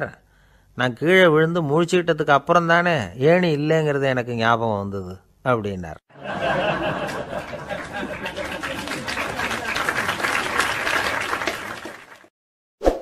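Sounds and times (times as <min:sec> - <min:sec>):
audience clapping: 0:06.9 - 0:12.3.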